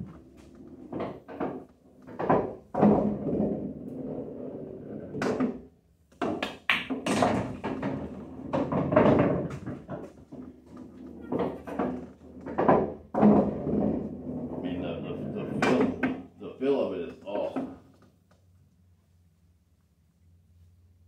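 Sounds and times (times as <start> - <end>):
balls rolling on cloth: 0.0 - 16.4
pool balls clacking: 0.0 - 18.3
balls knocking off cushions: 0.9 - 3.8, 5.2 - 14.2.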